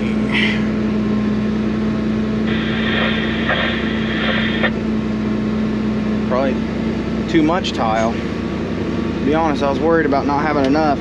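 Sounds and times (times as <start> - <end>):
tractor diesel engine running: 0.0 - 11.0
high whine: 2.4 - 5.1.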